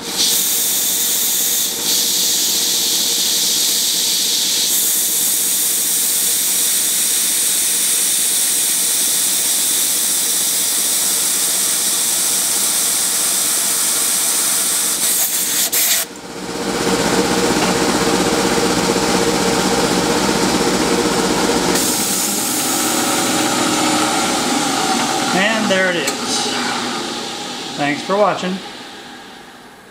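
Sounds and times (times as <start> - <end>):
milling machine humming: 9.3 - 29.9
air nozzle hissing: 15.0 - 16.1, 21.8 - 23.2.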